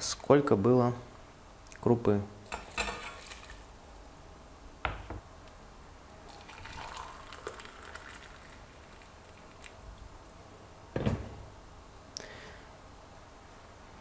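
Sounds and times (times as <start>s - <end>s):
water pouring into a glass mug: 6.2s - 9.8s.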